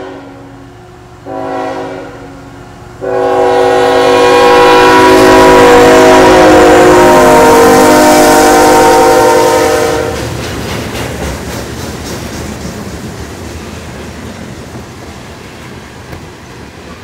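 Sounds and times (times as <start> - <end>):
locomotive air horn: 0.0 - 10.2
freight cars rumbling and clattering: 10.0 - 17.0.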